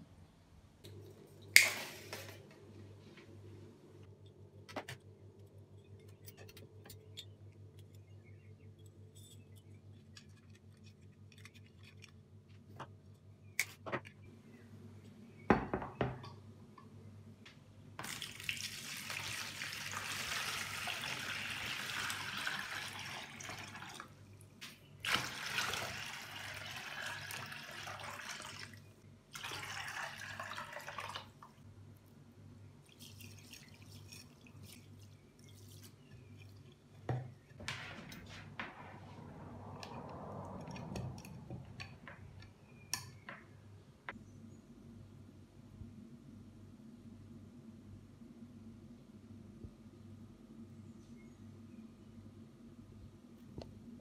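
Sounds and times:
water pouring into plastic tub: 18.0s - 24.2s, 25.0s - 31.6s.

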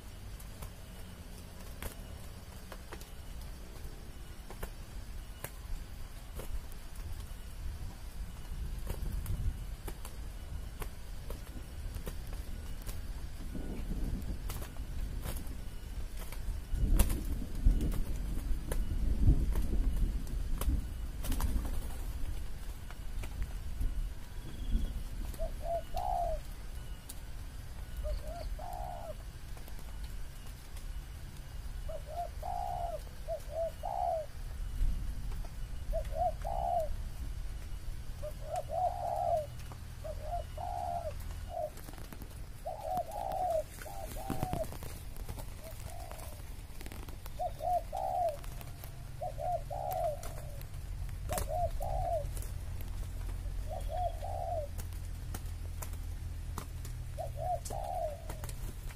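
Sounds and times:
doves cooing: 0.0s - 58.9s.

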